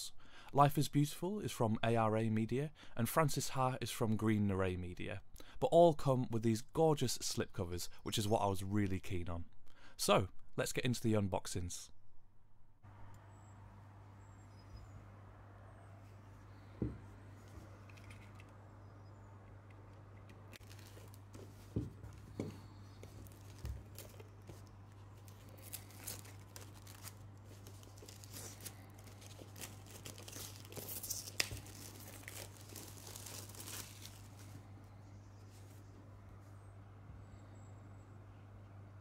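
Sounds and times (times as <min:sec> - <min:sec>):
plastic wrap crinkling: 0:20.3 - 0:34.7.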